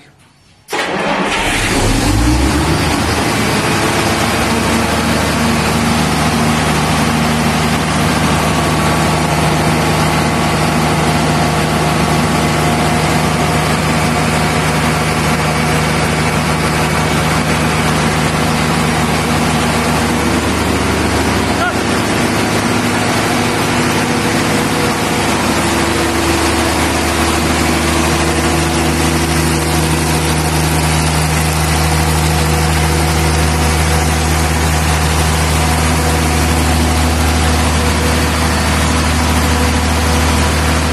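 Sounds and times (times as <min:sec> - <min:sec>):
diesel generator engine running: 0:00.0 - 0:40.9.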